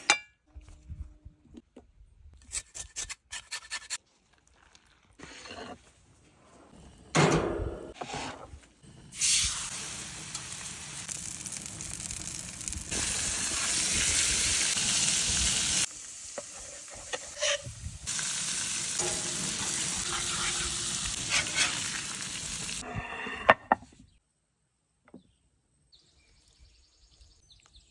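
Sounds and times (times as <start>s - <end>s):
metal spatula scraping: 7.9s - 9.5s, 16.4s - 17.7s, 18.9s - 22.2s
fish sizzling: 9.1s - 22.8s.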